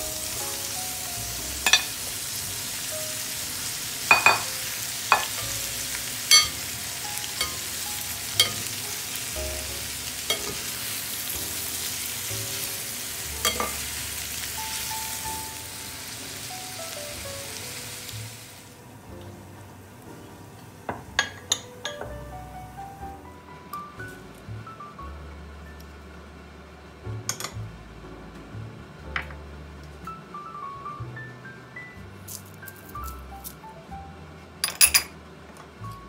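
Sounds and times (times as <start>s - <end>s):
meat and onion sizzling in pan: 0.0s - 24.6s.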